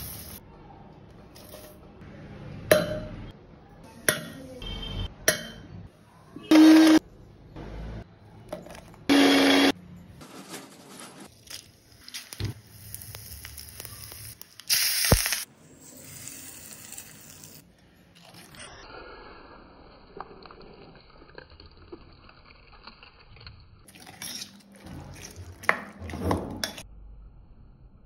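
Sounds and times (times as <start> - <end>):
mixer grinder whirring: 6.5 - 7.0, 9.1 - 9.7
spices sizzling in hot oil: 11.9 - 17.6.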